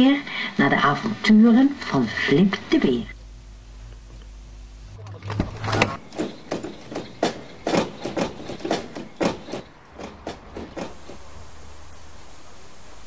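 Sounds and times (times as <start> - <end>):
car doors slamming: 5.4 - 11.4.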